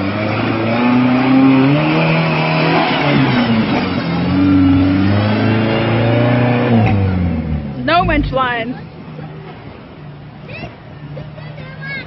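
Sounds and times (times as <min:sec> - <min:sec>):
truck engine revving: 0:00.0 - 0:09.1.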